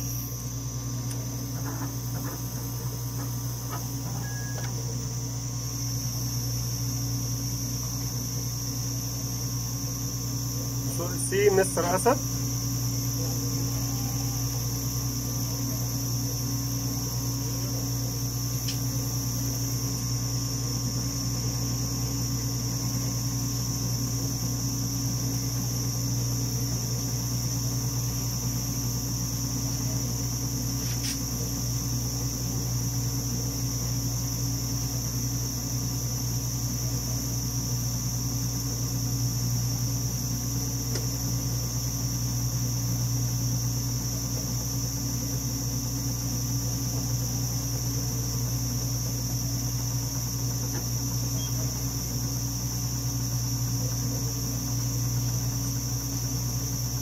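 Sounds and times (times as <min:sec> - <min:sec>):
thin high whine: 0:00.0 - 0:36.1
analyzer machine humming: 0:00.0 - 0:57.0.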